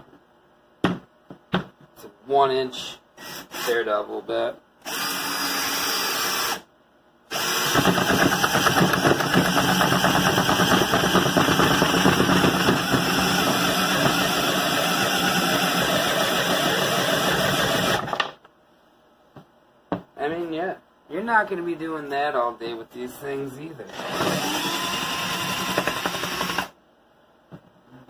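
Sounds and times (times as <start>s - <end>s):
cordless drill boring into wood: 3.2s - 3.8s, 4.8s - 6.6s, 7.3s - 18.2s, 23.9s - 26.8s.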